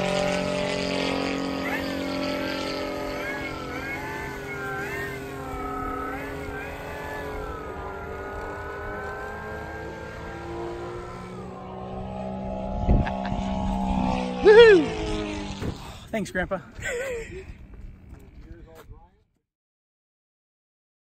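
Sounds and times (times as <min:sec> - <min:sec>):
model plane propeller whirring: 0:00.0 - 0:18.7
steady low hum: 0:00.0 - 0:19.1.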